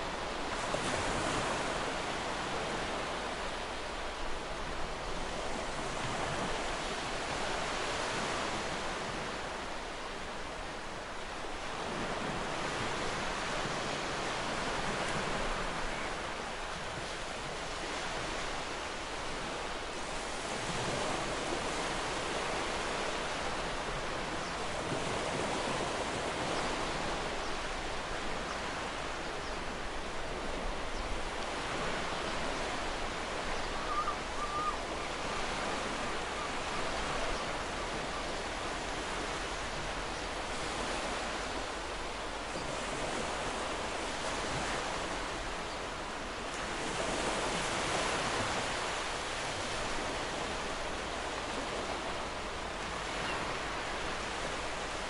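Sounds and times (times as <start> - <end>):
ocean waves breaking: 0.0 - 55.0
bird call: 33.6 - 35.1.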